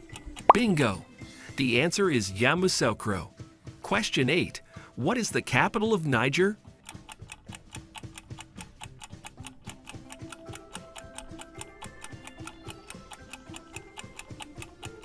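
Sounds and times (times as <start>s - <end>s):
clock ticking quickly: 0.0s - 0.8s, 6.7s - 15.0s.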